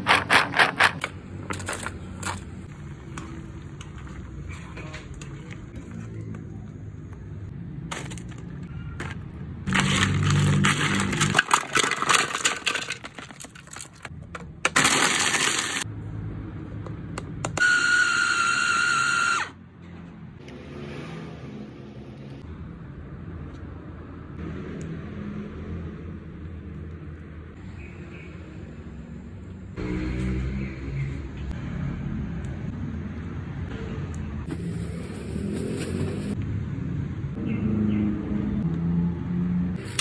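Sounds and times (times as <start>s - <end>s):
electric food chopper grinding: 17.6s - 19.4s.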